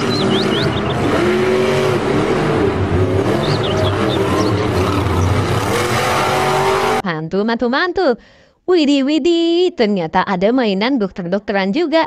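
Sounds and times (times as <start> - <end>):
monster truck engine running loud: 0.0 - 7.0.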